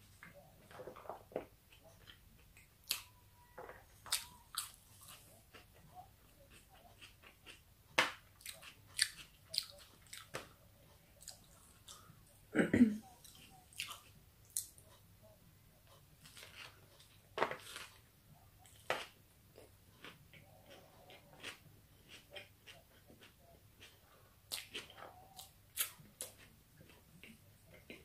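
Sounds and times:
chewing with wet smacks: 0:04.0 - 0:07.6, 0:08.4 - 0:12.1, 0:13.2 - 0:14.9, 0:19.6 - 0:28.0.

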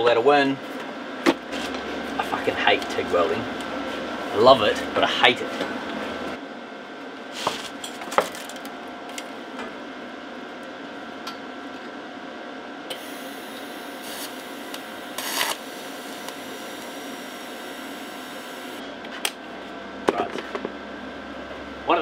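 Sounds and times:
electrical hum: 0:00.0 - 0:22.0
welding arc hissing: 0:12.9 - 0:18.8.

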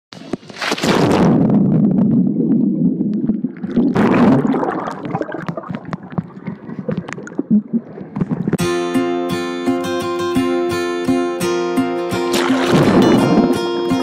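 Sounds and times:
underwater churning and bubbles: 0:00.1 - 0:08.6, 0:12.3 - 0:13.7
small underwater clicks and pops: 0:05.3 - 0:07.4
strummed acoustic guitar music: 0:08.6 - 0:14.0.

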